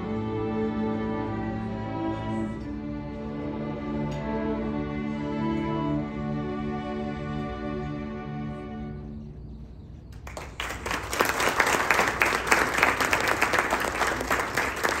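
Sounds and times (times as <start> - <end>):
audience applause: 10.2 - 15.0.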